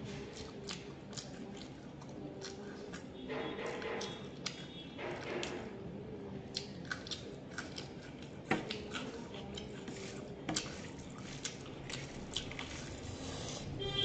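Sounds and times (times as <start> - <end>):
hand squishing rice: 8.6 - 13.8.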